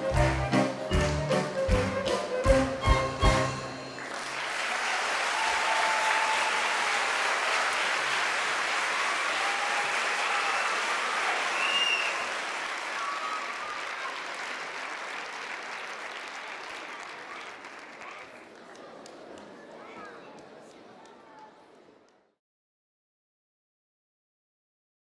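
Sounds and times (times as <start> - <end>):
audience applauding: 2.8 - 21.1.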